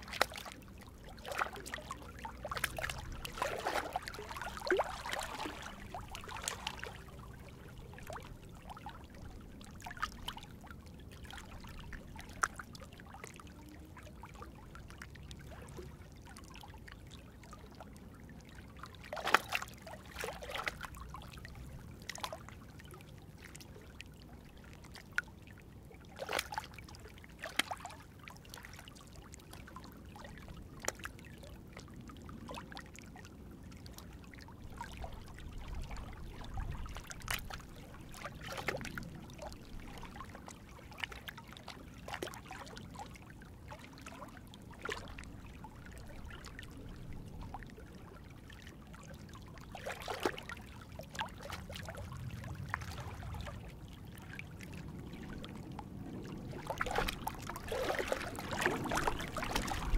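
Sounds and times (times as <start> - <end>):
small waves lapping on rocks: 0.0 - 14.4, 18.8 - 22.6, 34.1 - 47.9, 56.4 - 59.9
water splashes: 0.0 - 59.9
low wind rumble: 51.9 - 59.9.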